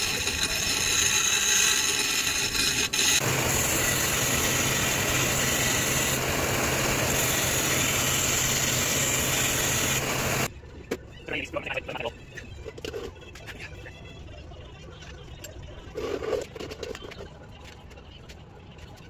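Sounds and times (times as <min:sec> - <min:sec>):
steel bar grinding on wheel: 0:00.0 - 0:10.5
belt sander humming: 0:03.2 - 0:10.5.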